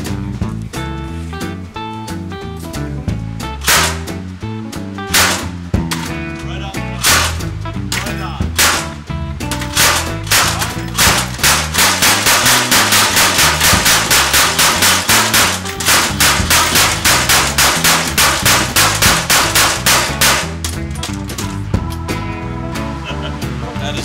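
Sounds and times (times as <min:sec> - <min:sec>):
gatling gun firing: 0:03.6 - 0:04.2, 0:05.1 - 0:06.1, 0:07.0 - 0:20.8.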